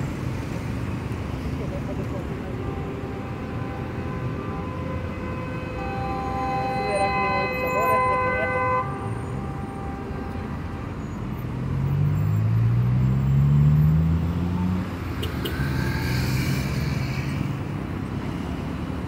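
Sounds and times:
vehicle engine passing: 0:11.4 - 0:17.6.

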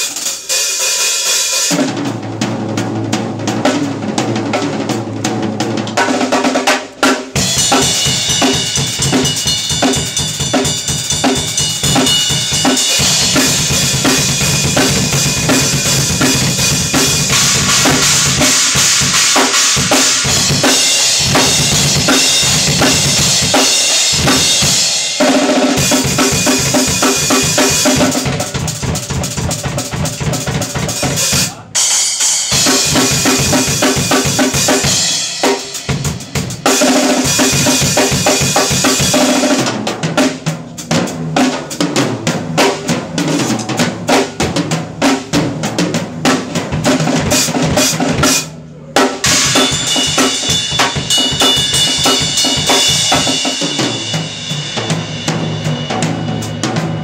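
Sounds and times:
drum kit solo: 0:00.0 - 0:57.0
cymbals ringing: 0:07.4 - 0:14.8, 0:49.2 - 0:57.0.

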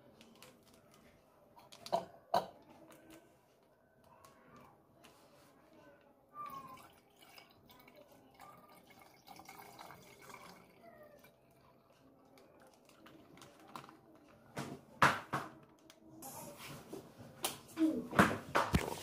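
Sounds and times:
milk pouring into steel pot: 0:06.4 - 0:13.8.

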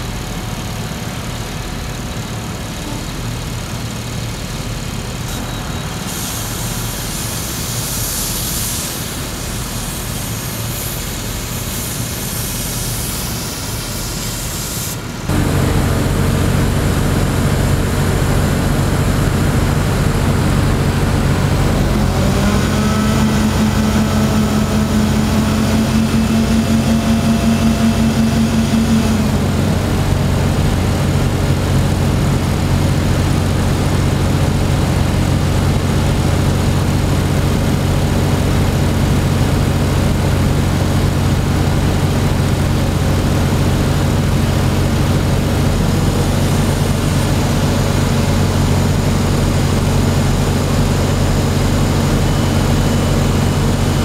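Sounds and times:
crane engine running: 0:00.0 - 0:54.0
higher engine tone: 0:15.2 - 0:54.0.

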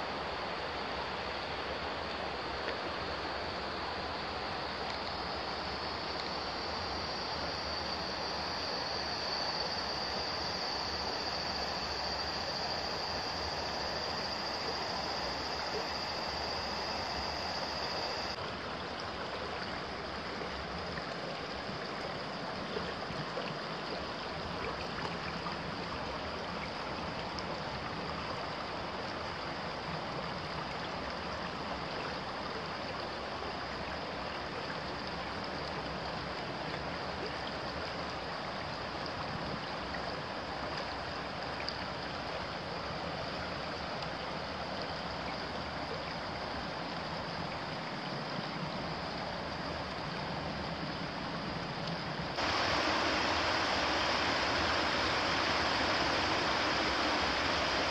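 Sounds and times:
thin high tone: 0:06.3 - 0:18.4, 0:52.3 - 0:57.9
stream babbling over stones: 0:48.7 - 0:57.9.

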